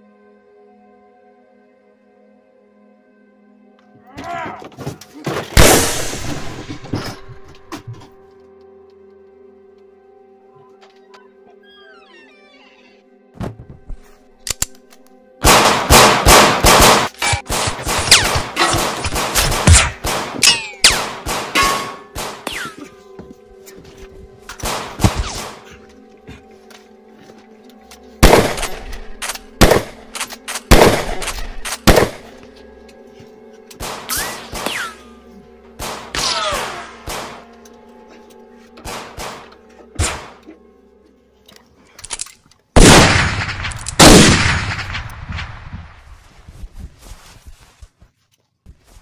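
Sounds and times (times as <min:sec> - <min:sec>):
low background music drone: 0:00.0 - 0:46.4
gunshots: 0:05.6 - 0:07.1, 0:15.4 - 0:22.8, 0:24.6 - 0:25.7, 0:28.2 - 0:32.3, 0:33.8 - 0:35.0, 0:35.8 - 0:37.4, 0:38.8 - 0:40.4, 0:42.8 - 0:46.0.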